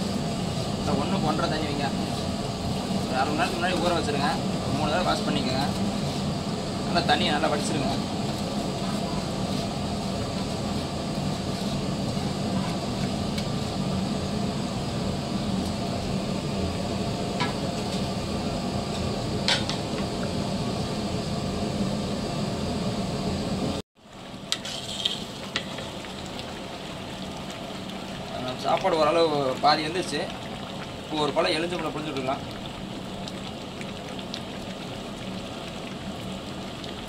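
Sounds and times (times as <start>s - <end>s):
water boiling in a pot: 0.0s - 37.0s
metal ladle scraping a pot: 24.5s - 25.9s.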